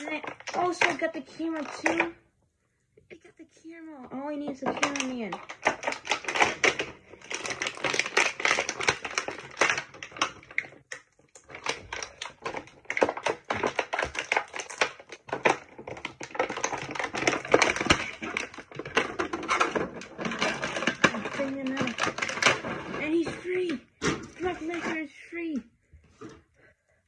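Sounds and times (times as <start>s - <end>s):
plastic packaging crinkling: 4.5s - 24.9s.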